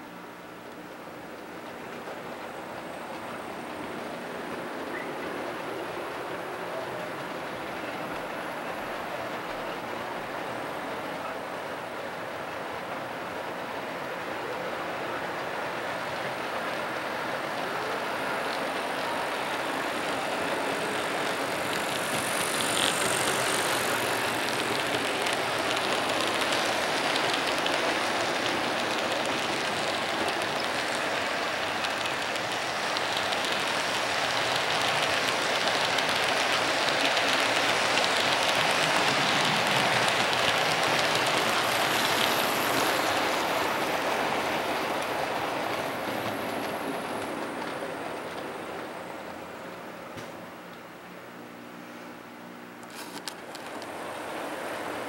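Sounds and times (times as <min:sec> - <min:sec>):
model train wheels rattling: 0:14.9 - 0:49.0.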